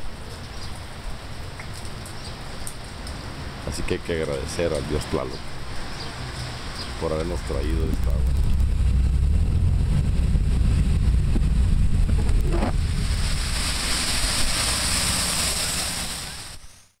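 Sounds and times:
heavy rain: 0.0 - 16.6
car tyres on wet road: 0.0 - 16.8
wind buffeting microphone: 7.9 - 15.0.

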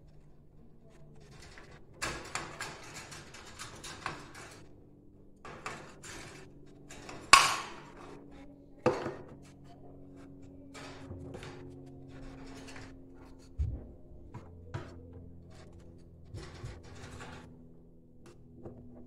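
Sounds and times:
clicks and rattles at wire cage: 0.0 - 19.0
sharp knocks: 13.6 - 15.1.

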